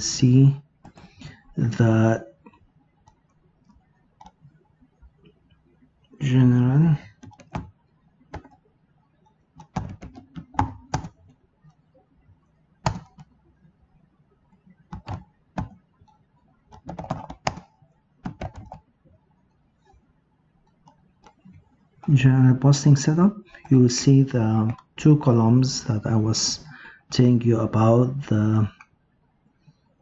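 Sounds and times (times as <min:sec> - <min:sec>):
keyboard typing: 0:02.4 - 0:05.8, 0:06.4 - 0:13.5, 0:14.5 - 0:25.3.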